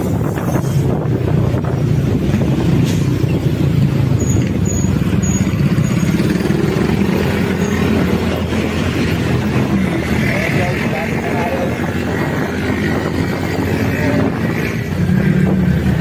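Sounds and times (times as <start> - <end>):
road and wind noise: 0.0 - 16.0
motorcycle engine running: 3.4 - 16.0.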